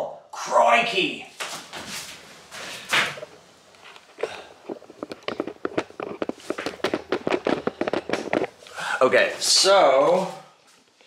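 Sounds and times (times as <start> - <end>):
irregular clicks and taps: 3.0 - 8.6
camera being handled: 4.7 - 8.6.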